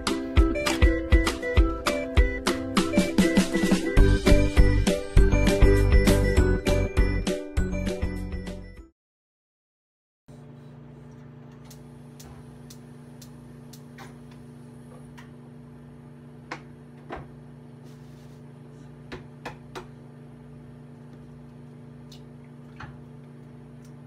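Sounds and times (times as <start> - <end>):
appliance motor humming: 10.3 - 19.2.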